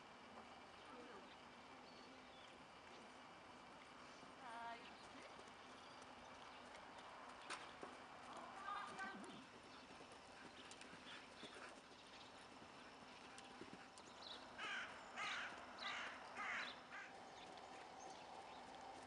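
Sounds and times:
horse hoofbeats on soft ground: 4.7 - 15.7, 17.1 - 19.0
bird harsh calls: 14.2 - 18.2.

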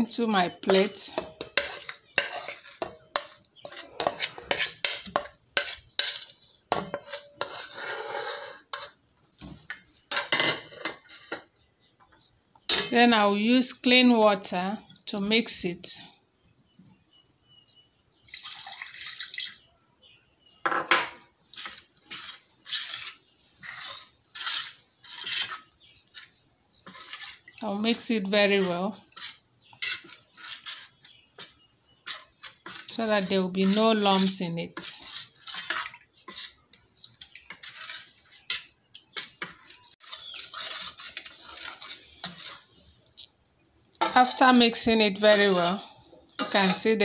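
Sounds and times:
metal spoon stirring in pot: 0.0 - 11.9, 21.4 - 43.3, 43.9 - 47.0
water pouring into pot: 18.3 - 19.6.

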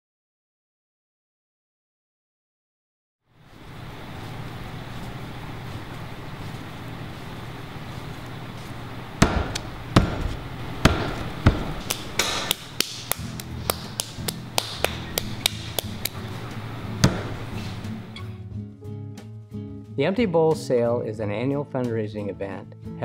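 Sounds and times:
hands slapping soft clay: 8.6 - 16.2.

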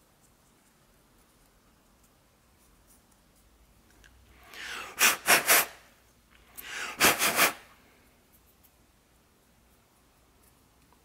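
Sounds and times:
person inhaling quickly: 4.3 - 5.9, 6.5 - 8.0
sharp puffs of breath: 4.3 - 8.0.

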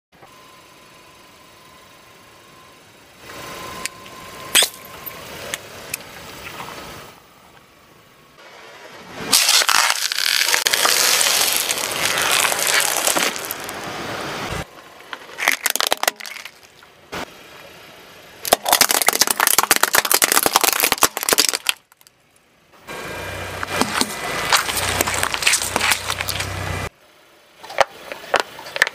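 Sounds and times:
sharp cracks: 9.3 - 13.7, 15.4 - 16.8, 18.4 - 22.1
tyre crushing objects crackling: 9.3 - 13.8, 15.3 - 16.8, 18.5 - 22.0, 23.7 - 26.9.

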